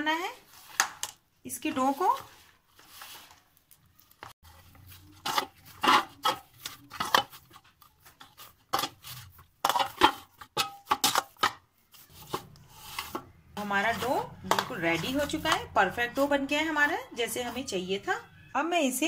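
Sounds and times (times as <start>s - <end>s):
knocks and scrapes on steel bowl: 5.1s - 16.0s.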